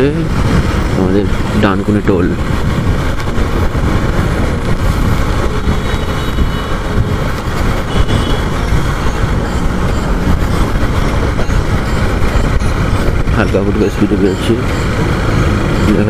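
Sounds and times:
motorcycle engine and road rumble: 0:00.0 - 0:16.0
wind noise on microphone: 0:00.0 - 0:16.0.

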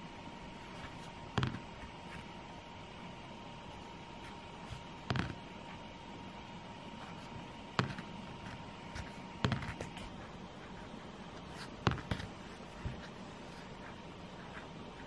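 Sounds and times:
pen scratching on paper: 0:07.0 - 0:15.0.

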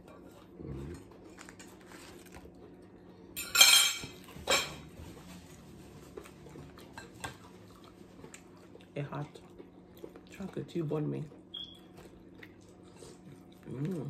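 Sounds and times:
dishes and cutlery clinking: 0:03.4 - 0:04.9.

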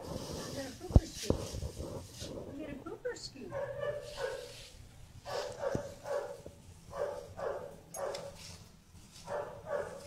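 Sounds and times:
dog barking: 0:03.5 - 0:04.5, 0:05.2 - 0:08.4, 0:09.2 - 0:10.0.

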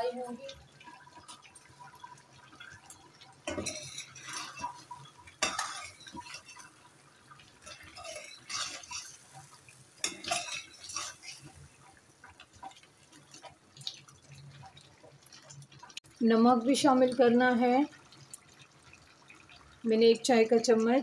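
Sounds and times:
metal spoon scraping a pan: 0:03.4 - 0:06.9, 0:07.6 - 0:11.7.

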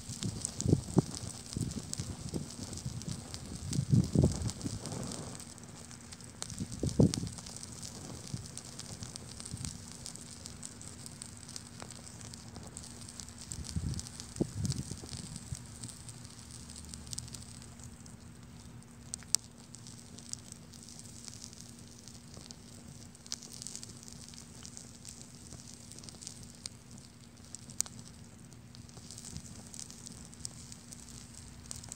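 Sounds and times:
paper fire crackling: 0:00.0 - 0:31.9.

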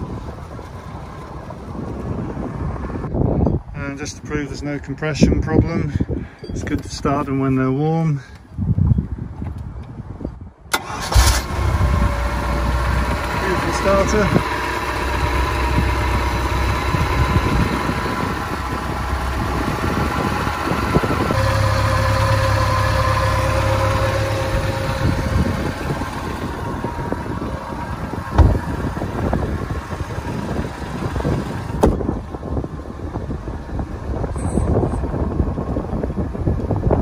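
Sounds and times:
boat engine idling: 0:00.0 - 0:03.1, 0:10.8 - 0:37.0
sharp engine knocks: 0:28.0 - 0:29.6, 0:30.4 - 0:32.1.

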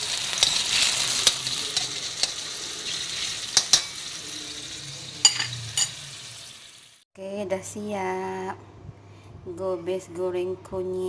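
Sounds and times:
metal spatula scraping wok: 0:00.0 - 0:04.2
food sizzling in hot oil: 0:00.0 - 0:07.0.

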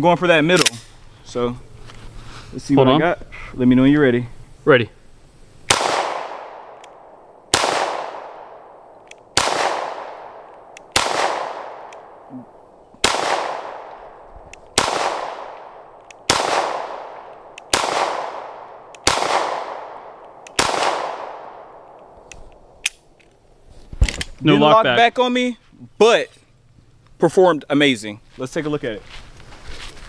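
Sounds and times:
pistol shots with echo: 0:05.7 - 0:12.3, 0:13.0 - 0:14.2, 0:14.8 - 0:22.0.

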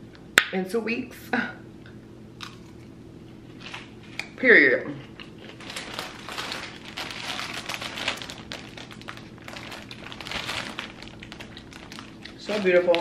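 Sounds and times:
plastic flower sleeve crinkling: 0:05.4 - 0:13.0.

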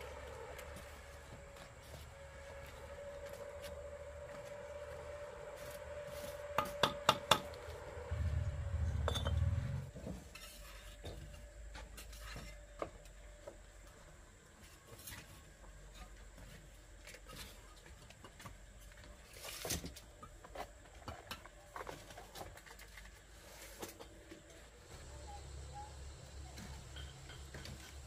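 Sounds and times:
low rumble: 0:08.1 - 0:10.0.

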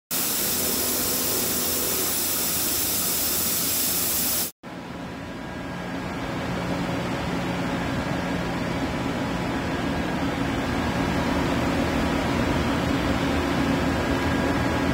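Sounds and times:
machine hissing: 0:00.1 - 0:04.6
machine hum with low drone: 0:04.7 - 0:14.9.

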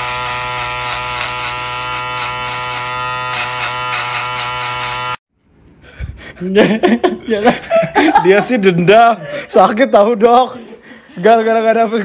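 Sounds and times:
electric hair clippers buzzing: 0:00.0 - 0:05.2.

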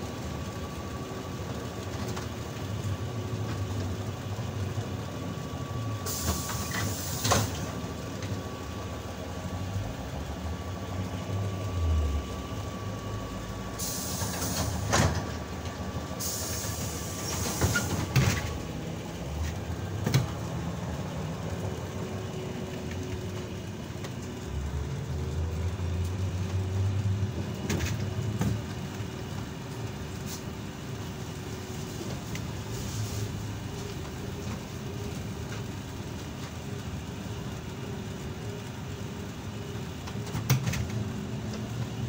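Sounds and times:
trolleybus running noise: 0:00.0 - 0:42.0
air hissing: 0:06.0 - 0:07.7, 0:13.8 - 0:15.1, 0:16.2 - 0:18.1, 0:32.7 - 0:33.4.

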